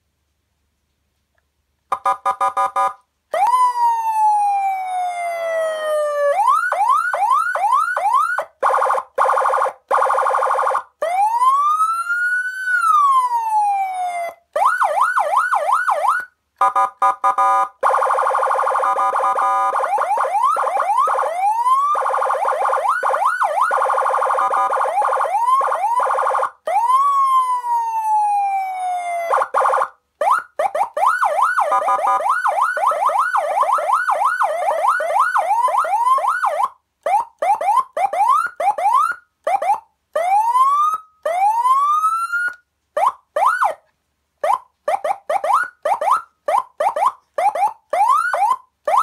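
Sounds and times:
electronic police siren: 1.9s - 43.8s, 44.4s - 49.0s.

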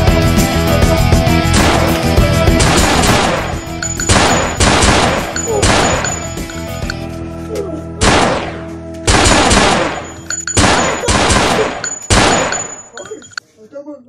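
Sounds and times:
echoing gunshots: 1.5s - 6.3s, 8.0s - 12.9s.

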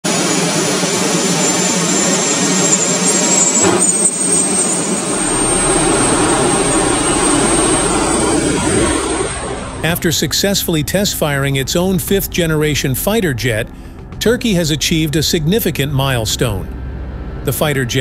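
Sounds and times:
jet engines rushing and whining: 0.0s - 18.0s.

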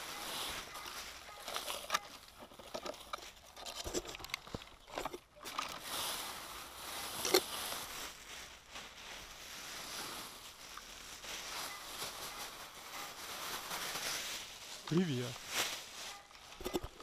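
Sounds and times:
footsteps on grass: 0.0s - 1.6s, 5.9s - 17.0s
plastic sack rustling: 0.0s - 17.0s.

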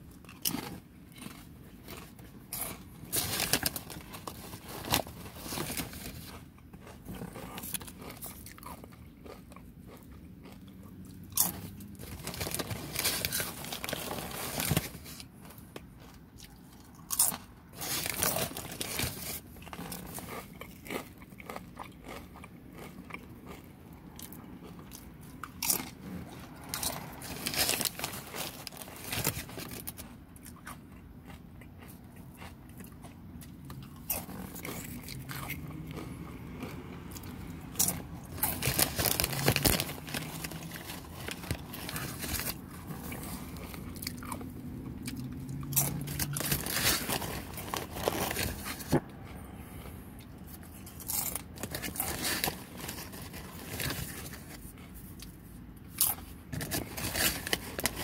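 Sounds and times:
chips crunching: 0.1s - 58.0s
chewing: 6.3s - 11.8s, 19.6s - 27.2s, 29.9s - 38.6s.

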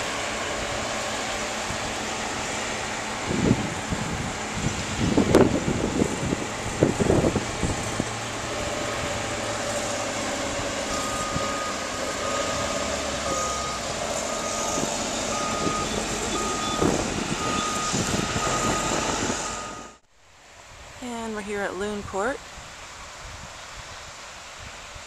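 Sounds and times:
heavy earthmoving machine running: 0.0s - 20.0s
reversing alarm beeping: 10.9s - 20.0s.

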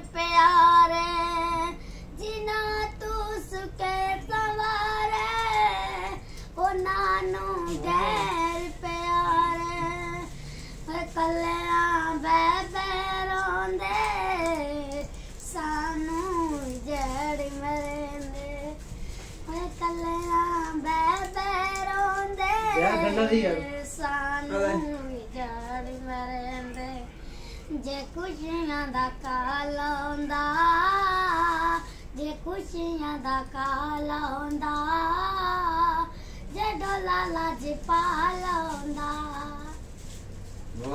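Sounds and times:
boy singing: 0.0s - 18.8s, 19.5s - 27.1s, 27.7s - 39.8s
boy singing solo: 7.1s - 10.3s.

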